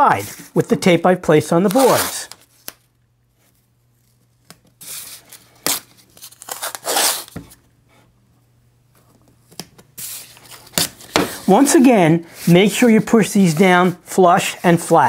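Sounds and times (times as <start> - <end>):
tape ripping off roll: 4.8 - 7.5.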